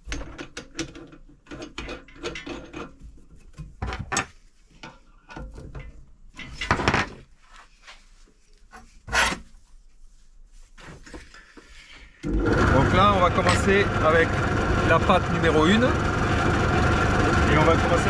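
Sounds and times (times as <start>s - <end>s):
hands rubbing and scraping: 7.3s - 12.0s.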